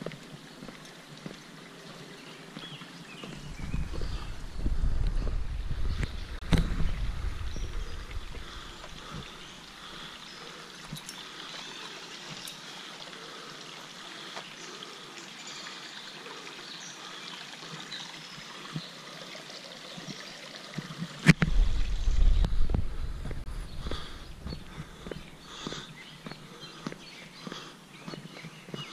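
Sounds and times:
creek trickling over stones: 0.0 - 28.9
wind rumble on microphone: 3.4 - 9.3, 21.3 - 25.2.

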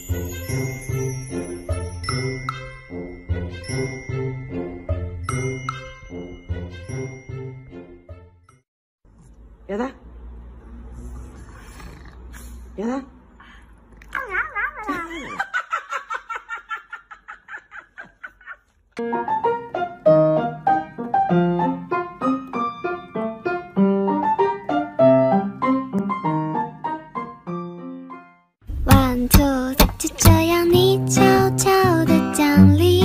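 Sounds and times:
solo piano music: 19.0 - 29.1.

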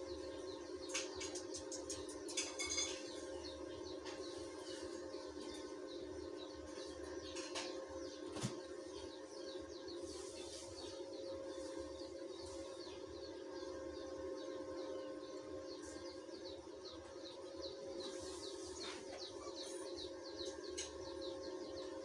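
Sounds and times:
small birds chirping: 0.0 - 22.0
steady hum: 0.0 - 22.0.

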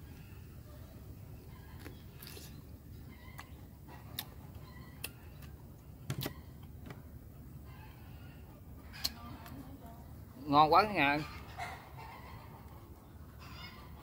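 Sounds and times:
chewing crunchy cucumber: 1.3 - 6.8.

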